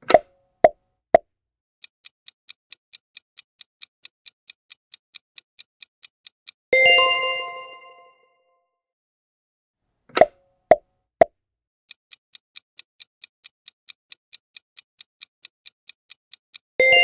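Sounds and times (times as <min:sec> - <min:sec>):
timer ticking: 0:01.8 - 0:08.0, 0:11.9 - 0:17.0
bright bell-like chime: 0:06.8 - 0:08.5.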